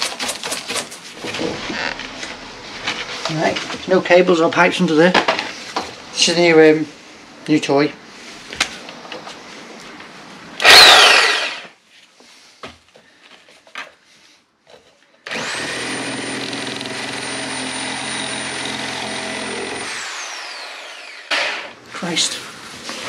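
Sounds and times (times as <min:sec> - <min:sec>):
reciprocating saw cutting: 0:10.6 - 0:11.7, 0:15.3 - 0:21.8.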